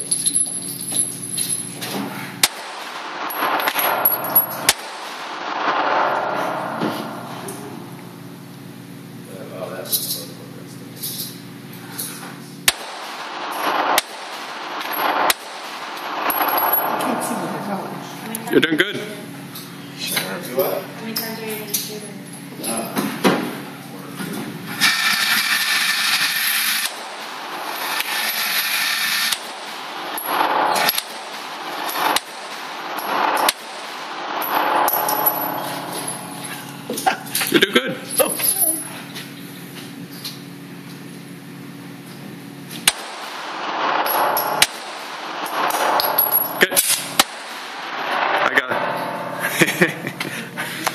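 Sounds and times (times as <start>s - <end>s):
pistol shots indoors: 2.4s - 7.3s, 12.6s - 17.1s, 26.8s - 28.2s, 29.3s - 36.7s, 42.8s - 48.7s.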